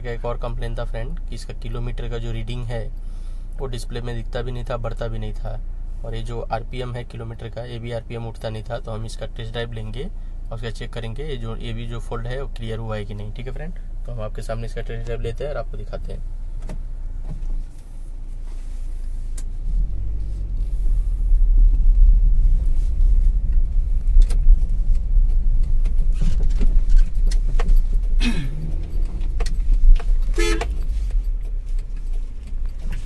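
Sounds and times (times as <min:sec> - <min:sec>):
car engine and road rumble: 0:00.0 - 0:33.0
light clicks and rattles: 0:23.5 - 0:33.0
car horn toot: 0:30.3 - 0:31.0.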